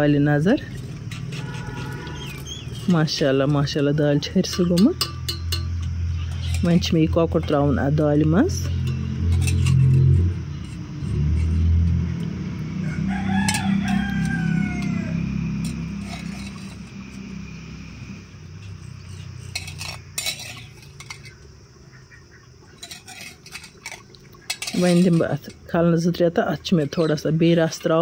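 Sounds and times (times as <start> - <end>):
rooster crowing: 1.2 - 2.8, 12.5 - 17.6
metal ladle clinking on metal: 4.3 - 7.8, 8.6 - 10.8, 13.4 - 15.0, 15.6 - 16.9, 19.0 - 21.4, 22.8 - 25.8.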